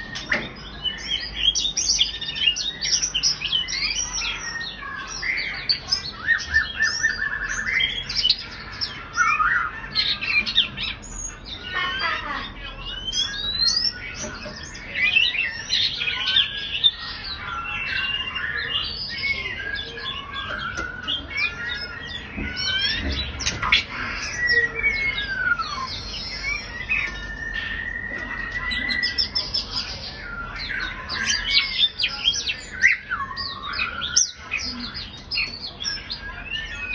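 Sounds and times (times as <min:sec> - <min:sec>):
bird singing whistles: 0:17.5 - 0:34.8.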